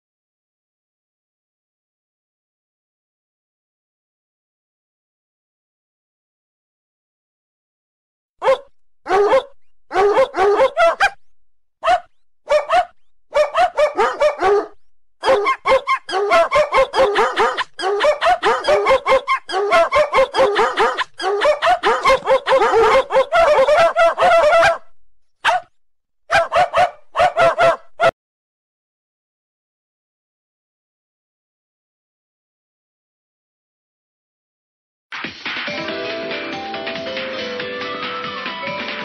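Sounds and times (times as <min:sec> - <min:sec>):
ringtone of dog barks: 0:08.4 - 0:11.1, 0:11.8 - 0:24.8, 0:25.4 - 0:25.6, 0:26.3 - 0:28.1.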